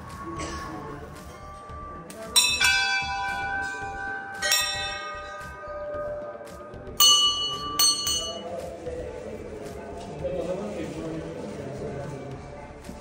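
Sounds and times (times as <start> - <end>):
brass temple bells ringing: 1.0 - 8.5.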